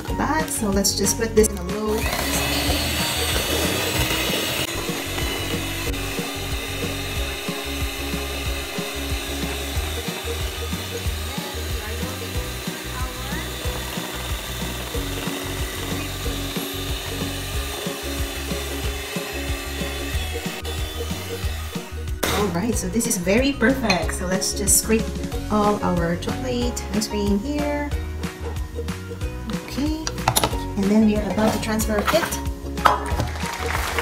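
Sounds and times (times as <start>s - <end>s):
electric hand mixer running: 1.8s - 27.0s.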